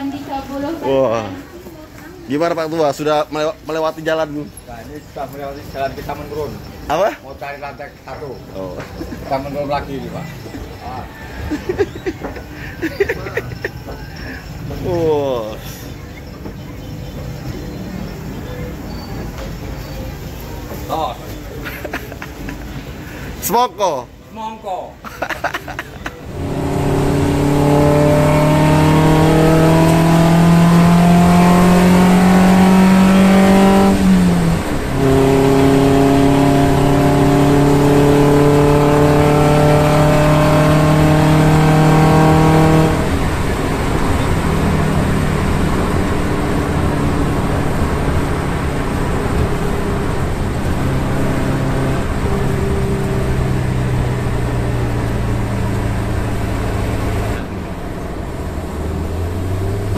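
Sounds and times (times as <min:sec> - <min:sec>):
van engine accelerating: 0:26.1 - 0:59.9.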